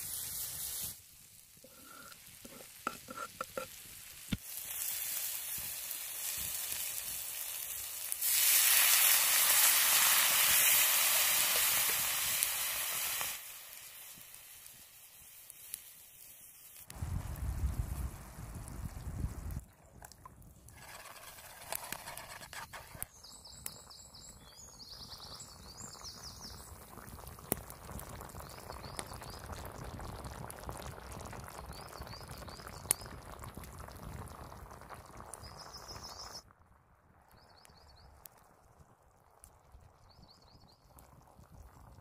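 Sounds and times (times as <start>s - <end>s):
food sizzling over campfire: 0.0s - 19.7s, 20.3s - 42.0s
small birds chirping: 20.9s - 26.8s, 31.6s - 33.2s, 35.3s - 36.4s.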